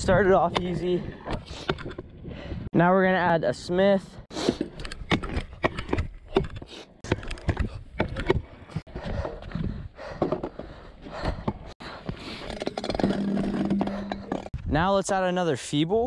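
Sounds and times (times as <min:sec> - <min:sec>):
scooter grinding a ledge: 0:11.5 - 0:14.6.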